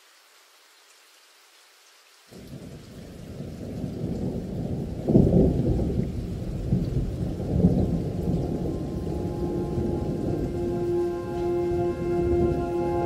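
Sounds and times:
steady rain: 0:00.0 - 0:13.0
rolling thunder: 0:02.4 - 0:13.0
held musical notes: 0:08.4 - 0:13.0.

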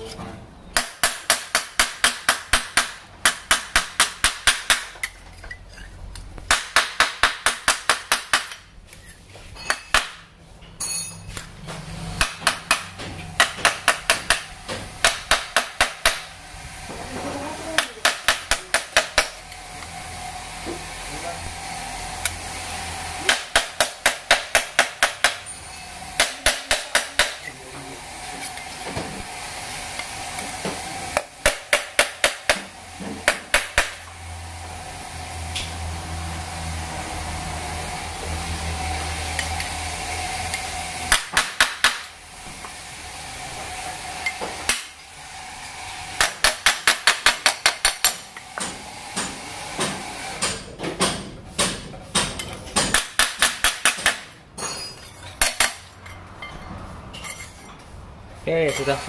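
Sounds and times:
hammer striking metal tool: 0:00.7 - 0:05.2, 0:10.8 - 0:11.5, 0:12.2 - 0:16.3, 0:17.8 - 0:19.6, 0:23.3 - 0:27.6, 0:31.2 - 0:34.0, 0:46.2 - 0:57.7.

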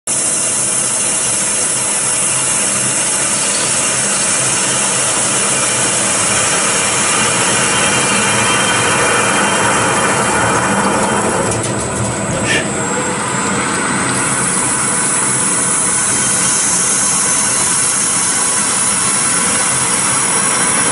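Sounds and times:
lathe machining metal: 0:00.1 - 0:20.9.

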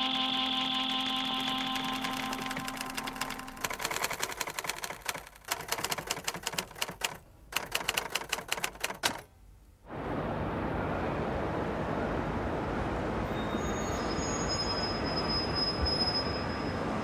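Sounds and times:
typewriter keys clattering: 0:01.0 - 0:09.3
steady background noise: 0:08.5 - 0:17.0.

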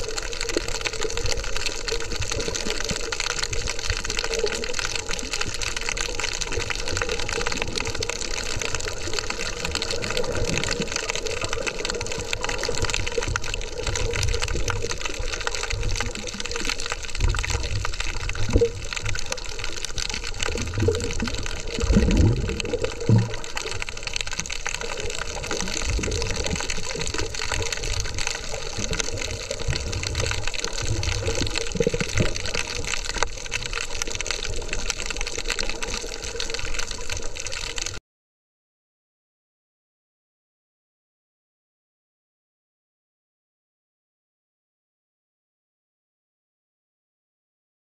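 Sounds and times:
underwater rushing water: 0:00.0 - 0:38.0.

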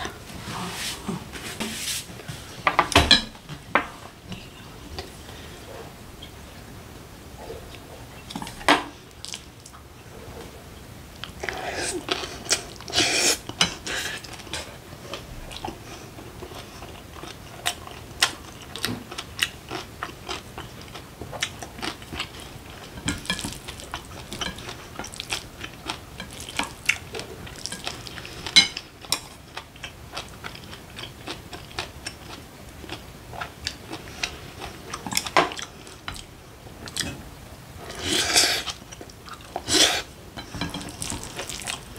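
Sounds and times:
person chewing: 0:11.2 - 0:37.2, 0:37.8 - 0:41.9.

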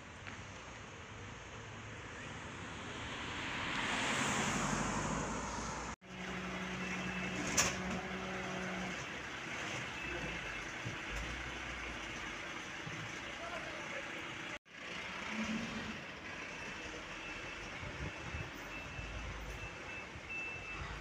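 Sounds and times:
fire engine driving past: 0:00.6 - 0:21.0
fire engine idling: 0:06.0 - 0:15.4.

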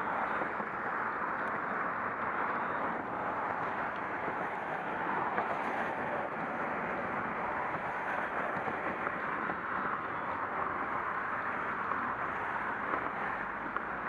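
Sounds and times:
highway road and wind noise: 0:00.0 - 0:14.0.

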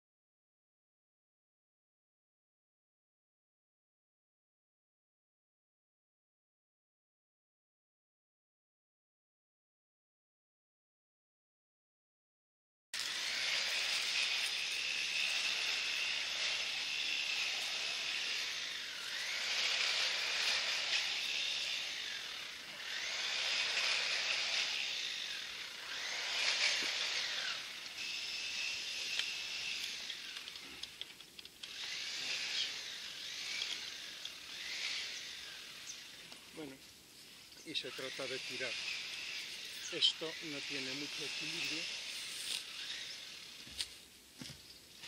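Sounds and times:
insects buzzing drone: 0:13.0 - 0:45.0.

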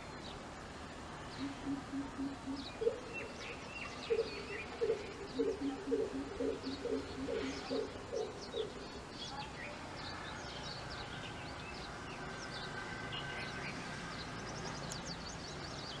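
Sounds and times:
small birds chirping: 0:00.0 - 0:16.0
coucal low coop calls: 0:01.4 - 0:03.3, 0:04.1 - 0:08.8.

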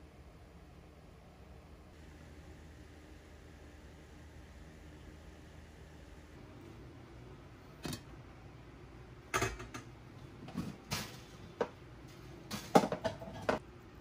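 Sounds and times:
kitchen knocks and clatters: 0:07.8 - 0:08.1, 0:09.3 - 0:13.6.

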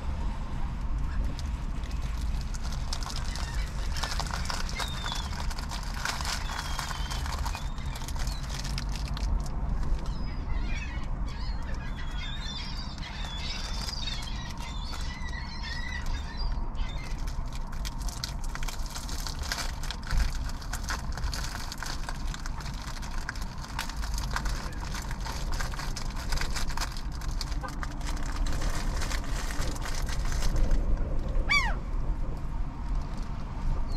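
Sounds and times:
steady low rumble: 0:00.0 - 0:33.9
dense crackling clicks: 0:00.8 - 0:10.2, 0:10.9 - 0:31.4
gulls calling: 0:10.0 - 0:17.4, 0:31.4 - 0:31.9.

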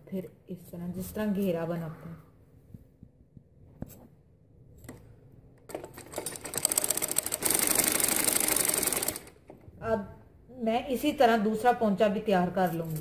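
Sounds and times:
sewing machine stitching: 0:05.7 - 0:09.6.

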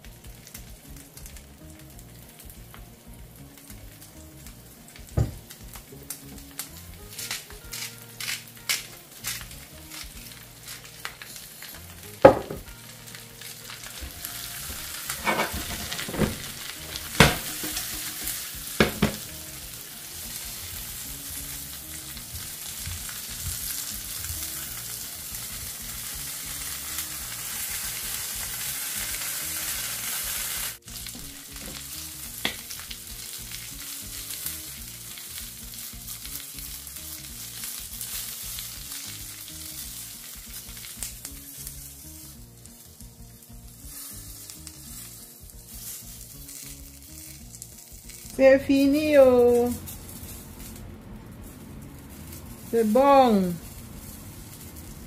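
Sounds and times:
corn sizzling in butter: 0:00.0 - 0:55.0
cobs knocking in pan: 0:05.0 - 0:12.8, 0:13.8 - 0:19.4, 0:22.1 - 0:25.8, 0:30.9 - 0:33.0.

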